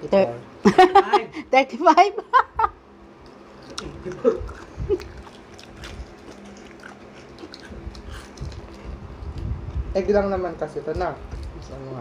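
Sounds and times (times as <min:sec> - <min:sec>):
people chewing food: 0:03.2 - 0:09.9, 0:11.2 - 0:12.0.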